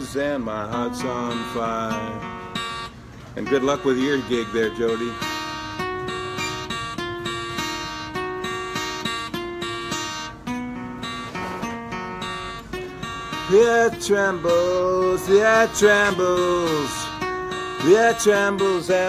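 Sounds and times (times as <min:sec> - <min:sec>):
acoustic guitar strumming: 0:00.0 - 0:19.0
person's voice: 0:03.4 - 0:05.3.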